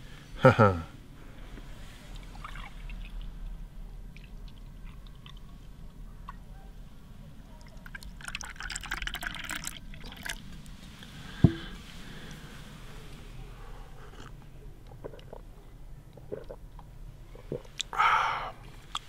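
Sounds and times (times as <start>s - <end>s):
milk pouring into a mug: 7.8s - 10.4s
sharp knock: 11.4s - 11.7s.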